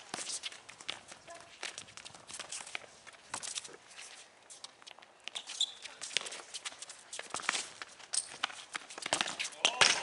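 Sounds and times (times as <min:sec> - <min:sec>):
footsteps and shoe scuffs on concrete: 0:00.0 - 0:09.6
shoe squeaks: 0:00.1 - 0:09.7
ball being kicked: 0:07.2 - 0:10.0.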